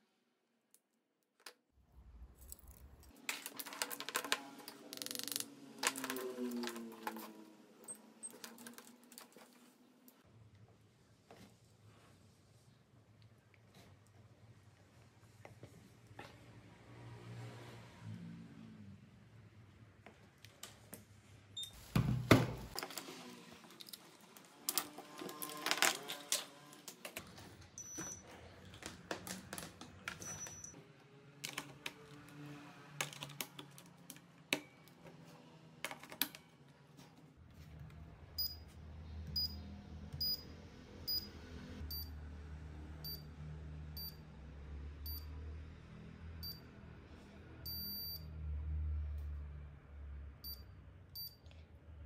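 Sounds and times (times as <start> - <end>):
short high beeps from charger: 40.2 - 40.4, 41.9 - 42.1, 44.0 - 44.2, 45.1 - 45.3, 47.7 - 48.3, 51.2 - 51.4.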